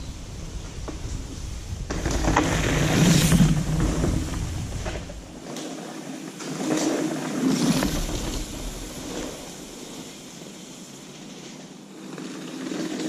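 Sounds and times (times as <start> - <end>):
wind on the microphone: 0.0 - 5.4
wind through trees: 0.0 - 13.0.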